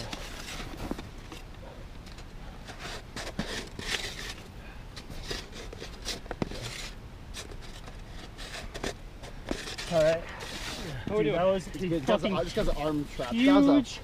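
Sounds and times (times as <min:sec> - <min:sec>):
snow scraping and crunching: 0:08.4 - 0:14.0.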